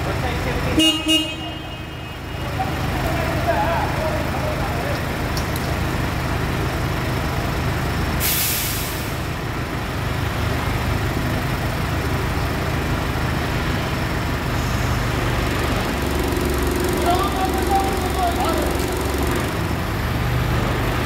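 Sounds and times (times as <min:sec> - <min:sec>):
forklift engine running: 0:00.0 - 0:21.0
short hiss: 0:08.2 - 0:09.2.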